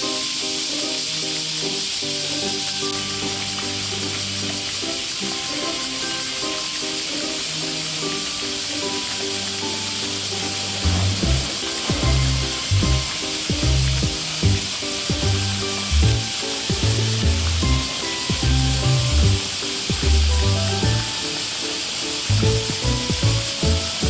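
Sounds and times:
water spray hissing onto pool: 0.0 - 24.0
background music with bass beat: 10.8 - 21.1.

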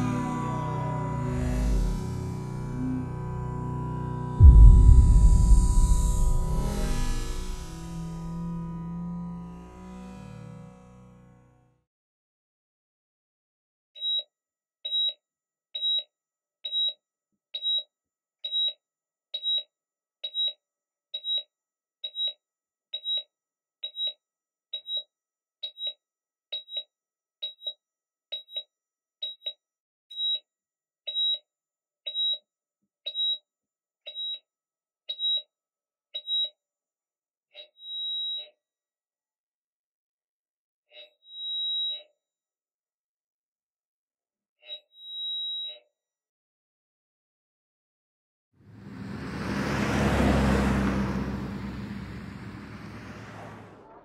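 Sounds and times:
heart monitor flatline tone: 4.4 - 8.0.

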